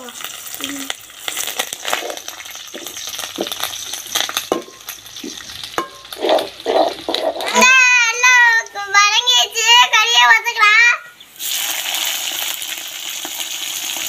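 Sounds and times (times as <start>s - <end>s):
food sizzling in hot oil: 0.0s - 8.7s, 11.2s - 14.0s
ladle scraping and knocking pan: 1.8s - 7.7s.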